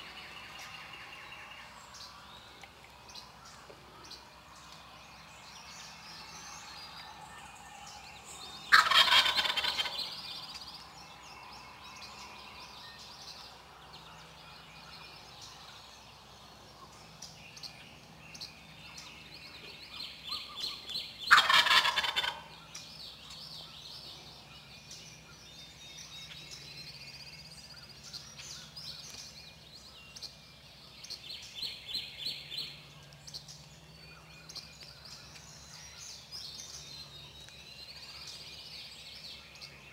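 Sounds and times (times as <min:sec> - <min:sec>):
small birds chirping: 0:00.0 - 0:39.9
turkey gobbling: 0:08.7 - 0:10.1, 0:21.3 - 0:22.5.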